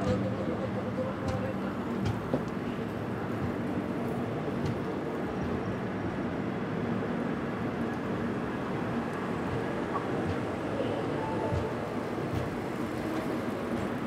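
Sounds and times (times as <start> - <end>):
train running rumble: 0.0 - 14.0.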